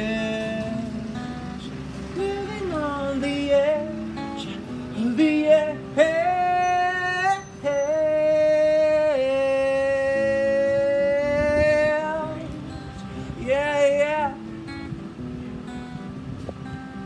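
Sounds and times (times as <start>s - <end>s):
acoustic guitar: 0.0s - 17.0s
man singing high notes: 2.2s - 12.6s.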